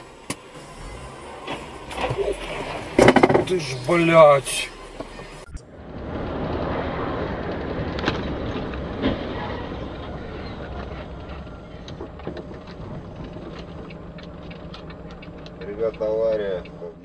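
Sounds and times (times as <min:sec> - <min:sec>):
engine and tyre rumble: 0:00.0 - 0:17.0
light ticks: 0:12.6 - 0:16.9.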